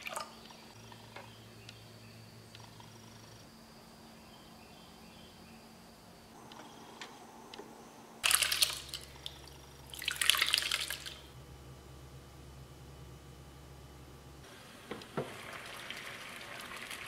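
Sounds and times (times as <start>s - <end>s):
liquid splashing into strainer: 8.2s - 11.2s.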